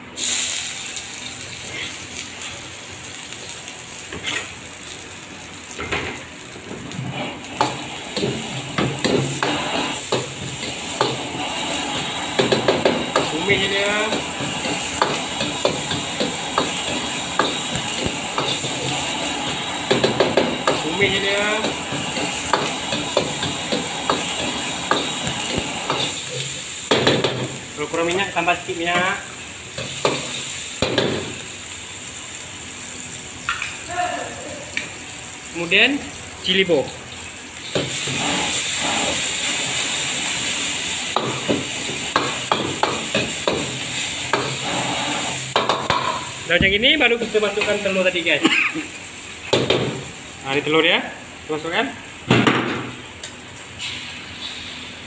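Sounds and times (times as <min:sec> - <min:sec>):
food sizzling in wok: 0:00.0 - 0:55.0.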